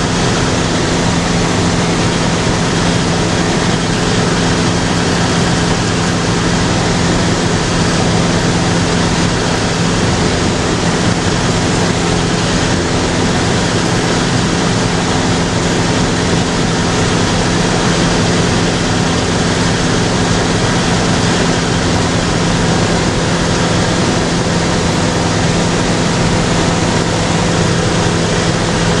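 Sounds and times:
light aircraft engine and propeller: 0:00.0 - 0:29.0.

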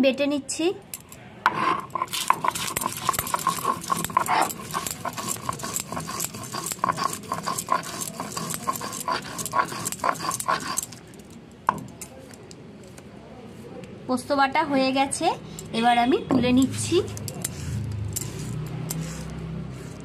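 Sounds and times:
grinding stone scraping and knocking: 0:01.5 - 0:12.4, 0:16.4 - 0:20.0.

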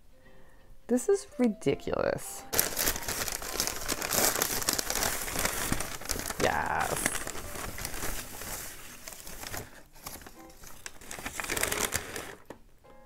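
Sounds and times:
paper wrap crinkling: 0:02.5 - 0:12.6.

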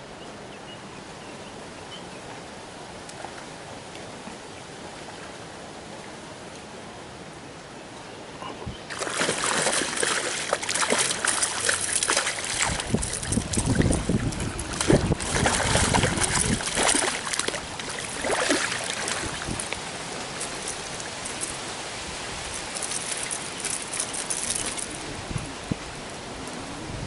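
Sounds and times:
water sloshing and trickling: 0:08.6 - 0:25.4
fish thrashing and splashing: 0:08.9 - 0:21.6
landing net splashing: 0:08.9 - 0:25.0.

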